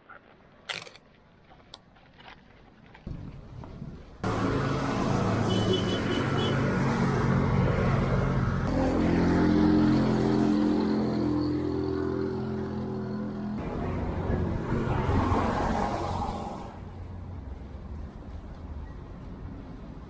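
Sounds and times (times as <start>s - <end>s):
wind rush: 13.9s - 17.3s.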